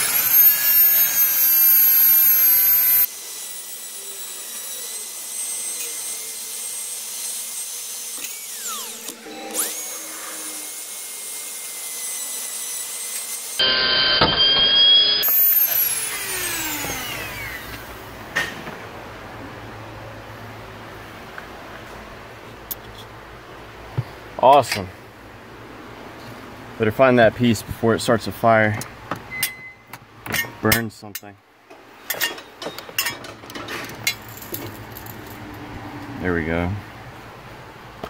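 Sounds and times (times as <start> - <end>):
rotary tool grinding metal: 0.0 - 17.9, 34.1 - 35.5.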